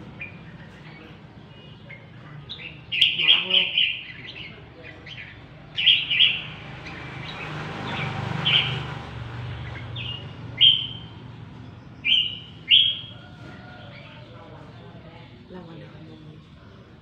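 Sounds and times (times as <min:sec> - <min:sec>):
birds singing: 0:00.0 - 0:17.0.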